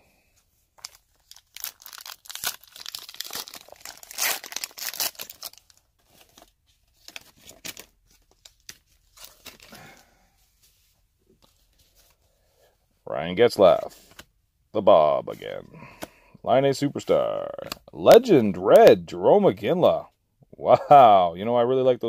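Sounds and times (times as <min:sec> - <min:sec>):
wrapper tearing and crinkling: 0:00.8 - 0:09.8.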